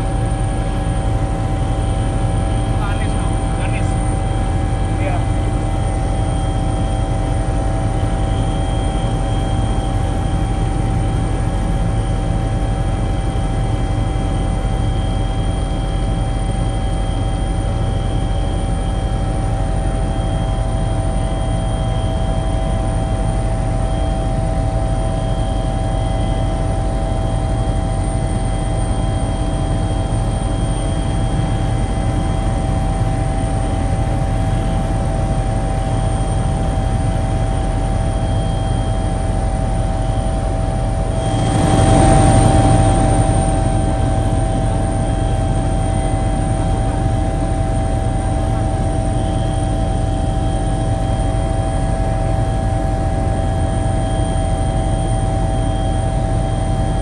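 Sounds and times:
aircraft engine drone: 0.0 - 57.0
whining tones: 38.0 - 50.3.

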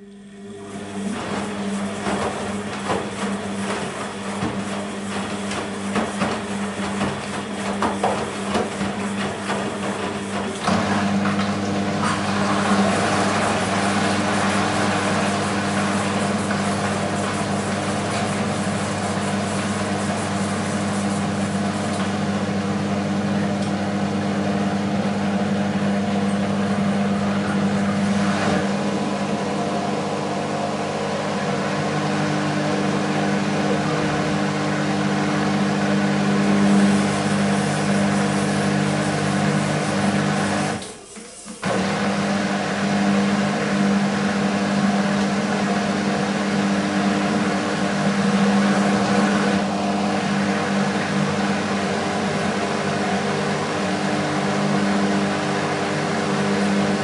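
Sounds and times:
washing machine motor hum: 0.0 - 57.0
washing machine knocks: 1.4 - 11.6.

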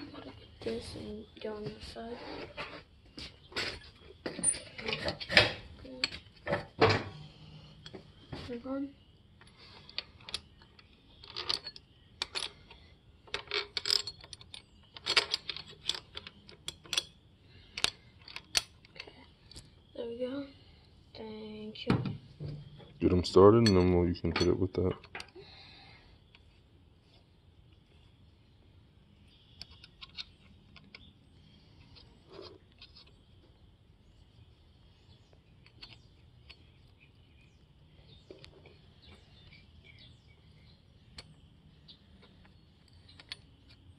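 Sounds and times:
metal brackets and bolts clinking: 4.3 - 7.2, 11.2 - 17.2, 22.5 - 25.3.

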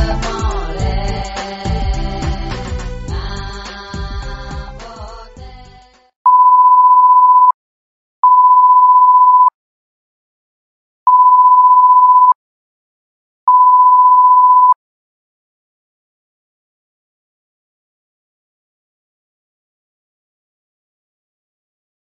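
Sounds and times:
music: 0.0 - 6.1
long electronic beeps: 6.3 - 7.5, 13.5 - 14.8.

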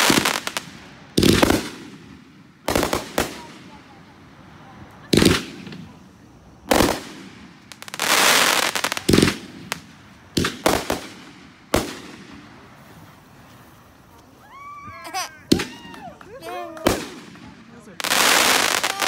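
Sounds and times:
firework bangs: 0.0 - 14.0, 15.0 - 19.0
firework crackling: 0.0 - 19.0
small firework pops: 4.8 - 6.0, 6.7 - 12.4, 15.5 - 19.0.

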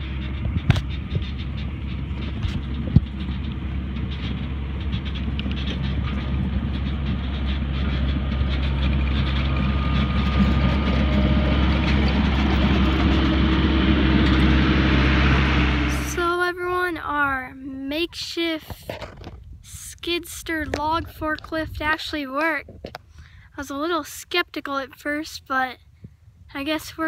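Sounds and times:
diesel engine under load: 0.0 - 18.7
tracks rattling: 0.0 - 24.2.

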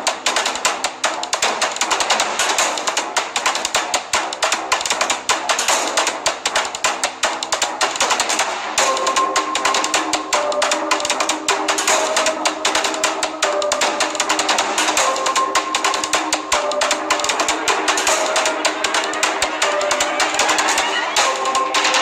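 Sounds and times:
driving drum beat: 0.0 - 22.0
held musical notes: 8.8 - 22.0.

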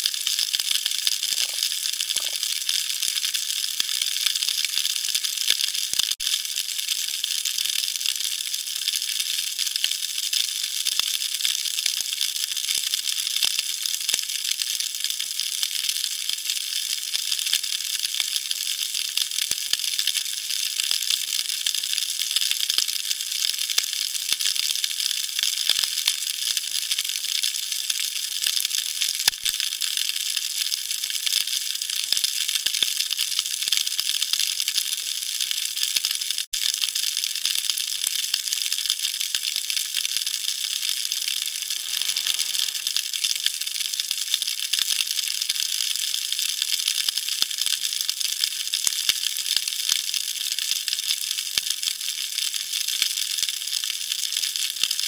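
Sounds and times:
snapping shrimp crackle: 1.1 - 2.9, 41.1 - 43.2.

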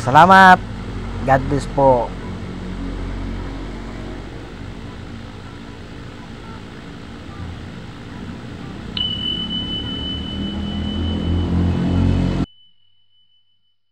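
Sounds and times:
high bell-like ding: 9.0 - 13.9.

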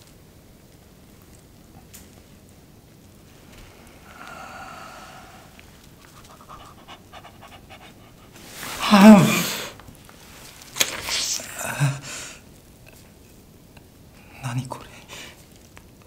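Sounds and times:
man moaning: 8.8 - 9.8.

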